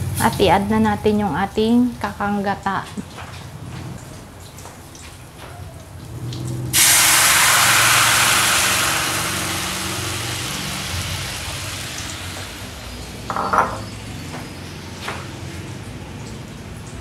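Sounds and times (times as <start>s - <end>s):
sizzling hiss in a frying pan: 6.7s - 13.3s.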